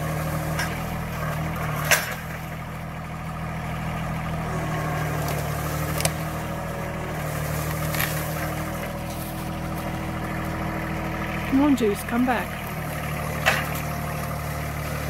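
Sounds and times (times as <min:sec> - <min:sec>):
tractor diesel engine running: 0:00.0 - 0:15.0
sharp wood cracks: 0:05.0 - 0:06.5, 0:07.4 - 0:10.6, 0:12.6 - 0:14.8.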